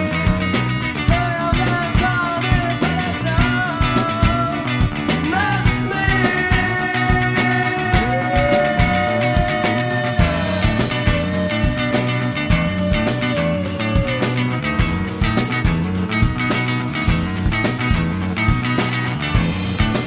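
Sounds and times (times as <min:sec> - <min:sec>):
rock band playing: 0:00.0 - 0:20.0
drum beat: 0:05.2 - 0:20.0
bending lead guitar note: 0:05.3 - 0:18.2.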